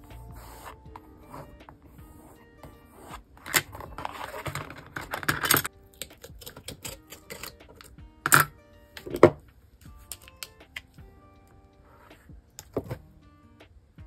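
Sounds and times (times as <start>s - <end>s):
soft background music: 0.0s - 14.0s
paper rustling: 3.0s - 5.7s.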